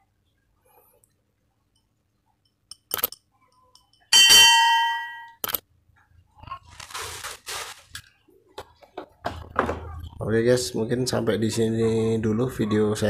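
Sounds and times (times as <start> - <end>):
bright metallic ding: 4.1 - 5.4
plastic bag crinkling: 6.4 - 8.2.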